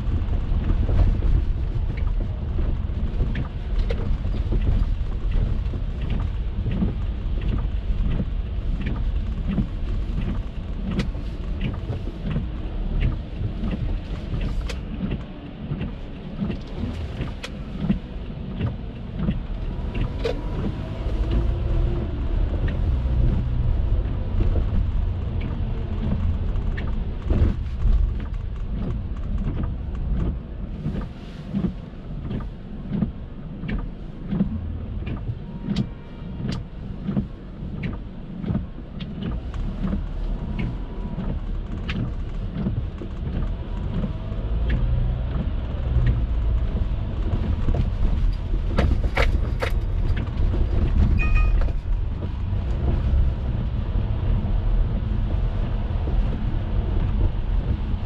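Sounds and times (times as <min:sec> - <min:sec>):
rain clicks and knocks: 0:00.0 - 0:58.0
road and engine rumble: 0:00.0 - 0:58.0
short high tone: 0:51.2 - 0:51.6.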